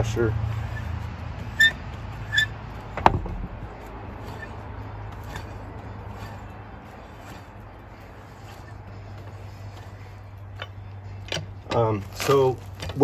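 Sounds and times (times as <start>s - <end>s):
steady low hum: 0.0s - 13.0s
lug wrench clinking on nuts: 8.3s - 13.0s.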